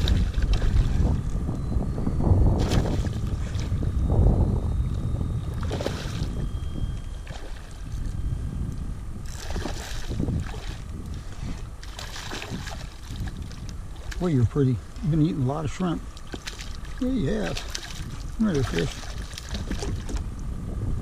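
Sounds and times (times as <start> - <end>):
fish thrashing and splashing: 0.0 - 1.2, 9.3 - 10.9, 11.8 - 14.3, 16.2 - 20.2
wind rumble on microphone: 0.0 - 21.0.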